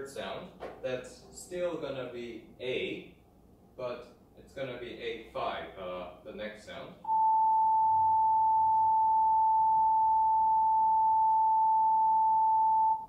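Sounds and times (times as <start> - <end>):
sine wave test tone: 7.0 - 13.0.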